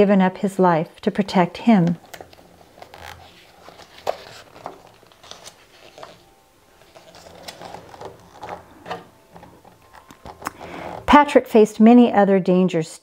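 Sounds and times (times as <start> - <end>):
book page turning: 1.8 - 11.1.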